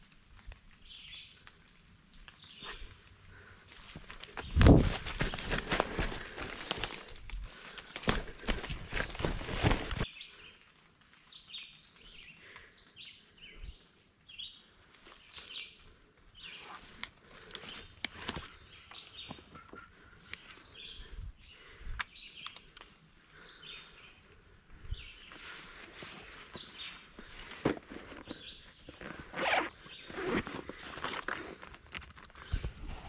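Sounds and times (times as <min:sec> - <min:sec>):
sharp snaps and rustles: 0:00.0 - 0:10.1, 0:16.6 - 0:20.6, 0:21.6 - 0:23.5, 0:25.3 - 0:33.0
footsteps crunching through leaves: 0:03.8 - 0:10.1.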